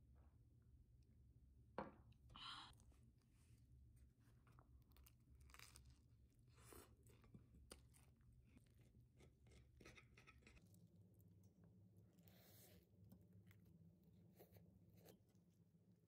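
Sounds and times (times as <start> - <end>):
croissant crust crackling: 4.2 - 10.6.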